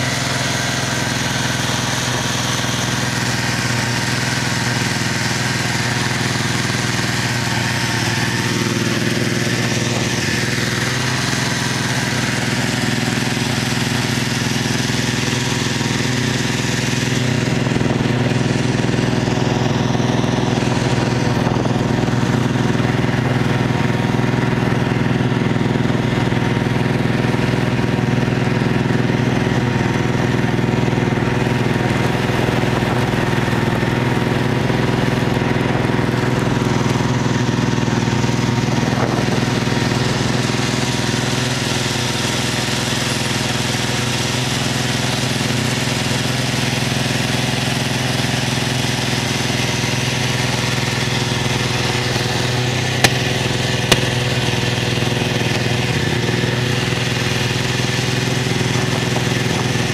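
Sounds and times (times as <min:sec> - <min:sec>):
snowmobile engine running: 0:00.0 - 0:59.9
sharp knocks: 0:53.0 - 0:54.3.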